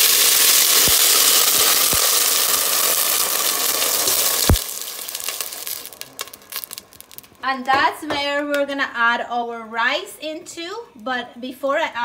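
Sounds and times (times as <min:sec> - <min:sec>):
water sizzling in hot oil: 0:00.0 - 0:07.4
faint crackling: 0:00.6 - 0:07.8.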